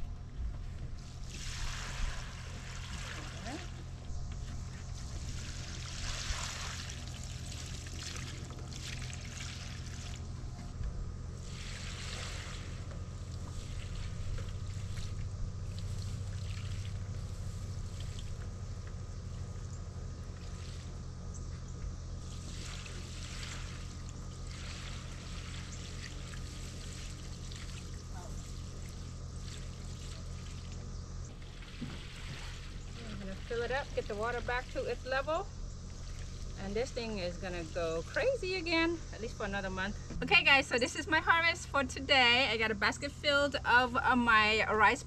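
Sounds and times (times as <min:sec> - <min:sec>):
steady low hum: 0:00.0 - 0:45.0
water pouring and trickling: 0:04.8 - 0:10.3, 0:22.2 - 0:30.8.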